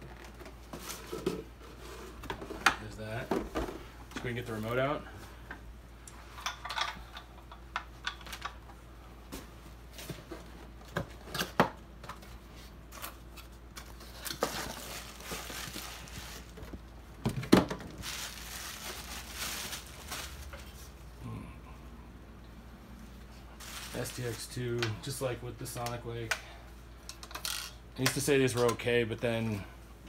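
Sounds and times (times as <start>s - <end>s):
paper and cardboard rustling: 12.1s - 16.8s, 17.6s - 21.0s, 23.6s - 24.6s.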